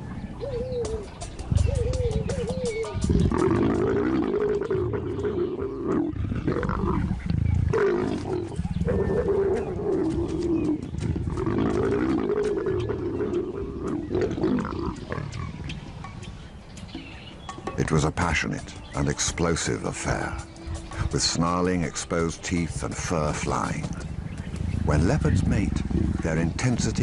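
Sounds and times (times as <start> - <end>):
leopards snarling and growling: 3.1 - 15.8.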